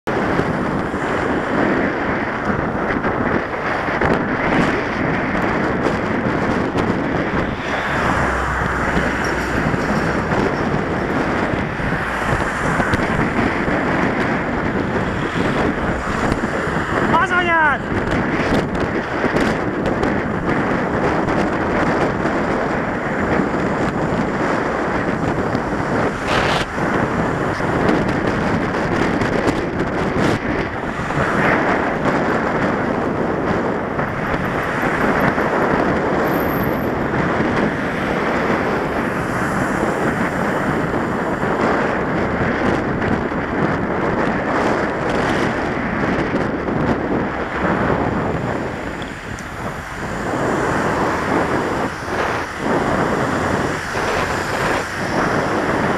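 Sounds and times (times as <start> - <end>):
road traffic: 0.0 - 55.9
wind buffeting microphone: 0.0 - 55.9.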